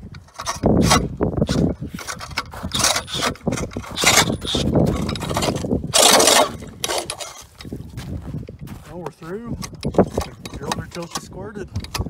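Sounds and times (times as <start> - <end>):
ice auger grinding through ice: 0.2 - 8.2.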